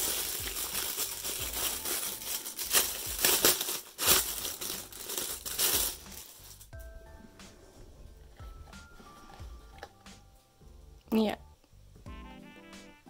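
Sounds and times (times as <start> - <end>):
plastic bag crinkling and rustling: 0.0 - 6.7.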